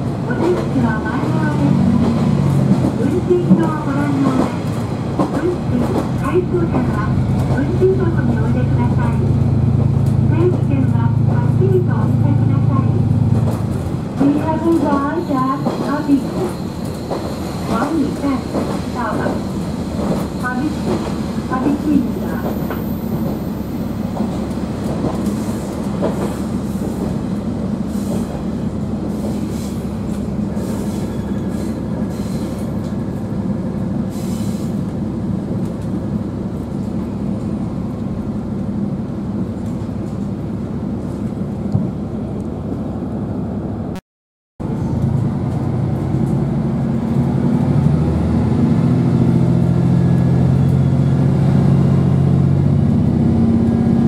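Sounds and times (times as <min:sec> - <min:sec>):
train wheels rolling on rails: 0:00.0 - 0:42.0
rail clicks: 0:00.0 - 0:42.6
diesel engine drone: 0:05.0 - 0:15.4, 0:44.6 - 0:54.0.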